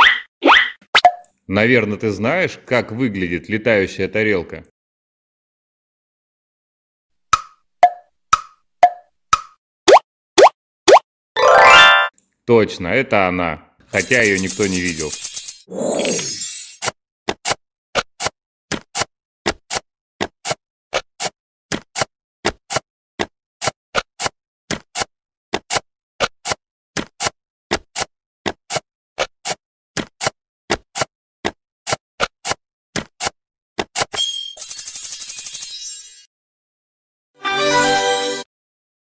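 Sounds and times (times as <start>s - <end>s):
bright musical jingle: 11.4s - 12.1s.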